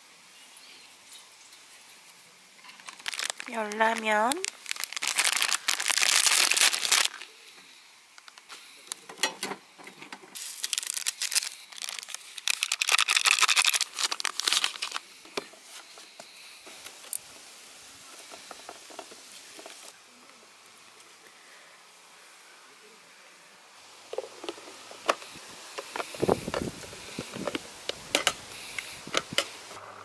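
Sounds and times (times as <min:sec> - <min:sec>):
plastic packet crinkling and tearing: 0:02.6 - 0:07.3, 0:08.2 - 0:08.5, 0:10.4 - 0:15.0
soft rustles and clicks: 0:08.1 - 0:09.2.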